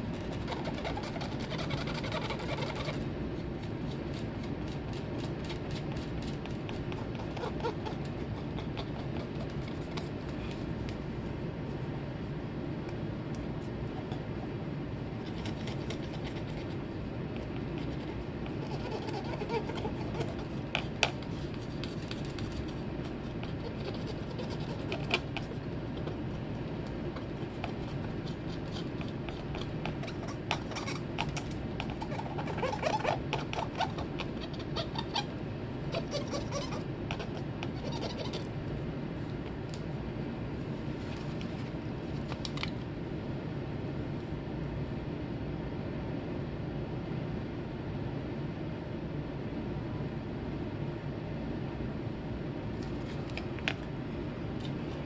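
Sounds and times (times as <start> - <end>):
steady low hum: 0.0 - 55.0
scratchy rubbing on circuit board: 0.1 - 10.5, 17.4 - 25.6, 27.2 - 35.3, 35.9 - 38.5.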